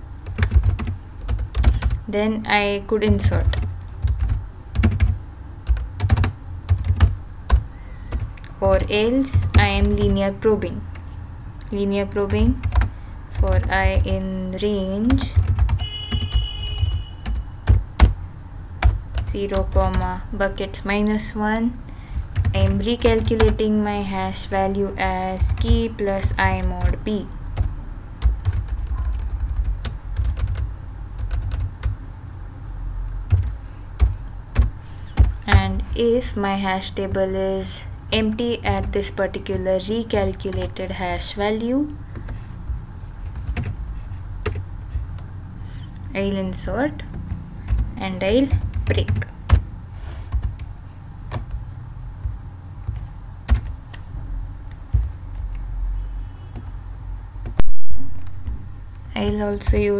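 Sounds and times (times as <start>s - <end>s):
low background rumble: 0.0s - 15.8s, 16.8s - 59.9s
typing on a keyboard: 0.2s - 2.0s, 3.0s - 8.5s, 15.1s - 18.2s, 27.6s - 32.0s, 43.2s - 43.8s, 47.0s - 49.6s, 52.2s - 54.0s.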